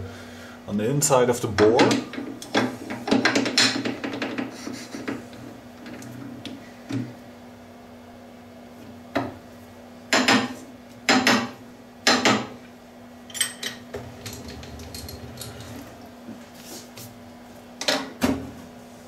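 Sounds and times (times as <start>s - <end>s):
steady low hum: 3.9s - 19.0s.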